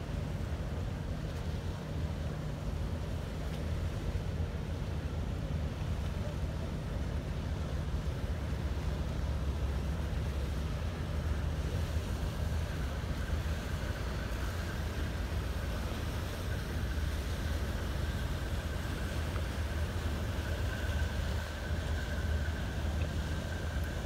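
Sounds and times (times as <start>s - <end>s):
boat engine drone: 0.0s - 24.0s
water and wind noise: 0.0s - 24.0s
faint high whine: 6.0s - 24.0s.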